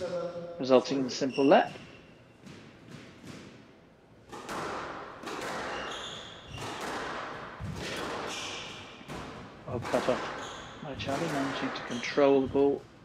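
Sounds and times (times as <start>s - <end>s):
shoe squeak on wooden floor: 1.1s - 2.4s, 5.7s - 6.8s, 10.0s - 12.5s
squash ball hits echoing: 1.7s - 12.8s.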